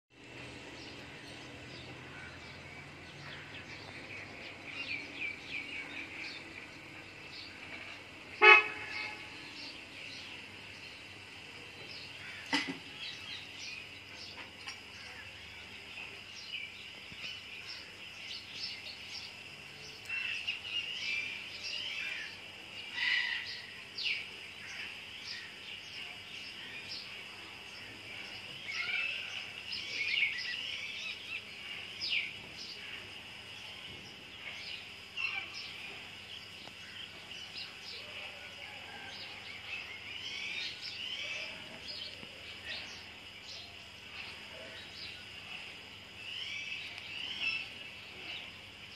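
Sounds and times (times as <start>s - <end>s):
birds chirping: 0.1s - 48.9s.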